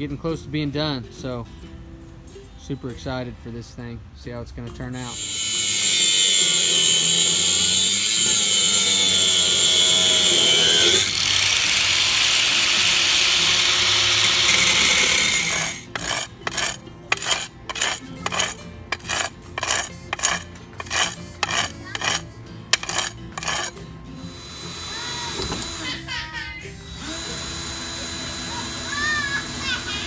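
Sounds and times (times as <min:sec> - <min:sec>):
power tool whining: 0:05.0 - 0:26.1, 0:26.7 - 0:30.0
rhythmic strokes: 0:05.0 - 0:30.0.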